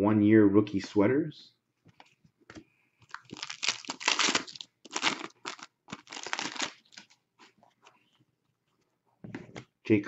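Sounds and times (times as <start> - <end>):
foil wrapper tearing and crinkling: 3.1 - 7.1.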